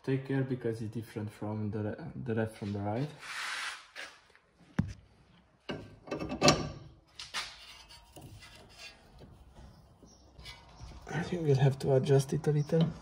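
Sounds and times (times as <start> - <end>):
metal knocks and scrapes: 5.6 - 11.2.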